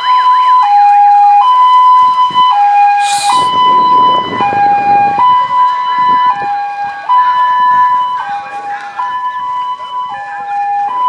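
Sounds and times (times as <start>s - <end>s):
two-tone electronic siren: 0.0s - 11.0s
short hiss: 3.0s - 3.5s.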